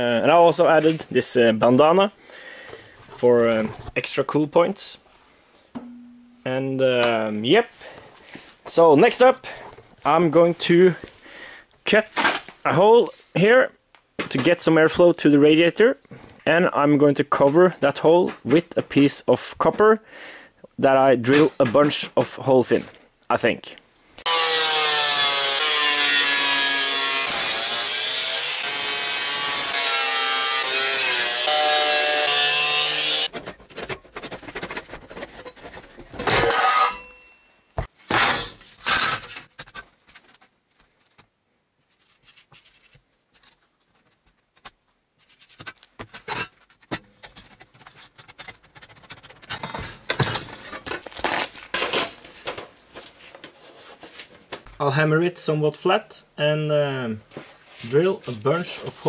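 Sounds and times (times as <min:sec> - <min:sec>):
loud ringing metal clang: 0:05.8 - 0:06.5
angle grinder cutting sheet metal: 0:24.3 - 0:33.3, 0:36.4 - 0:37.1.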